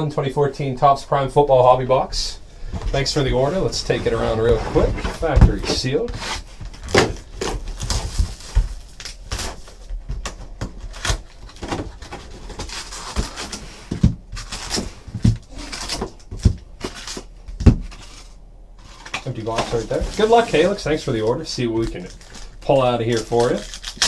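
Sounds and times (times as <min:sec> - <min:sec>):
shrink wrap crinkling: 0:05.2 - 0:24.0
box cutter slitting shrink wrap: 0:22.0 - 0:24.0.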